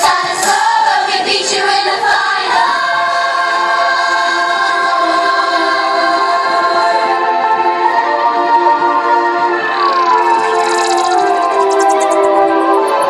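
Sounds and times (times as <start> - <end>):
group of voices singing: 0.0 - 13.0.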